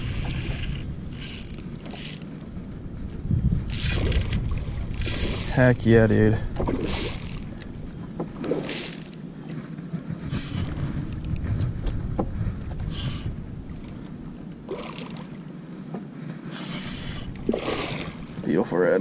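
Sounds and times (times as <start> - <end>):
fishing reel whirring and clicking: 0.0 - 2.4, 3.6 - 7.8, 8.5 - 9.3, 11.0 - 11.5, 14.7 - 15.3
rushing water and wind: 0.0 - 19.0.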